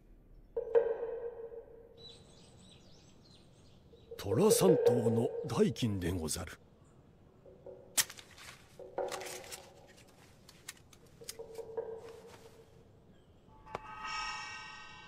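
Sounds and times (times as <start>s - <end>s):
paper rustling: 8.0s - 12.7s.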